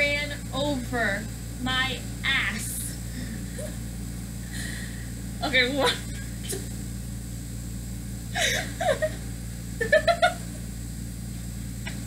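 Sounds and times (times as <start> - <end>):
steady low hum: 0.0 - 12.0
young women laughing: 8.4 - 9.2, 9.8 - 10.6.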